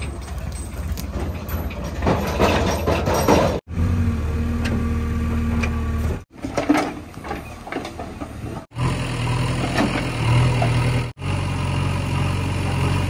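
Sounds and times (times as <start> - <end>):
rough scraping and clatter: 0.0 - 3.7, 5.6 - 11.2
diesel engines running: 0.0 - 13.0.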